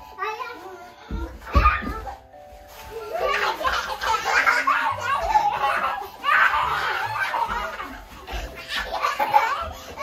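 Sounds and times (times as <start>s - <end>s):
children laughing and squealing: 2.8s - 10.0s.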